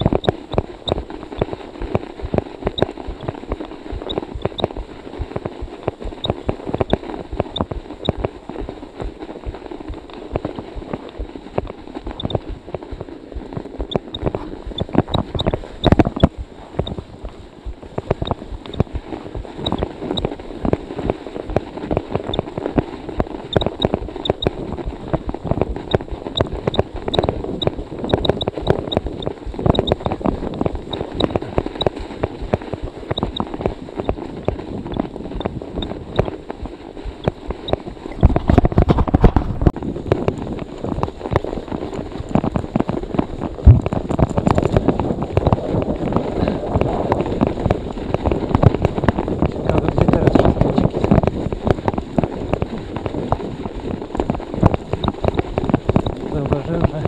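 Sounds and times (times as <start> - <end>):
wind rumble on microphone: 0.0 - 57.0
bike tyres crunching through snow: 0.3 - 57.0.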